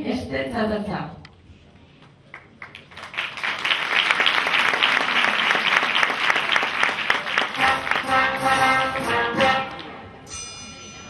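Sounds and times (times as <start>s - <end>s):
audience applauding: 2.3s - 9.2s.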